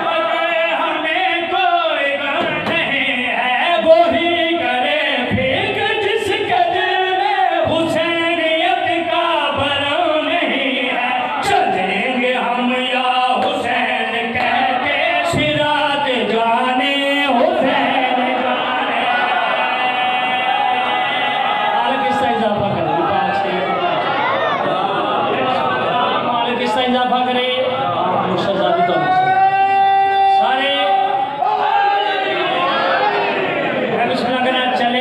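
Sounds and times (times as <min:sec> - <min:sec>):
man chanting into microphone: 0:00.0 - 0:21.1.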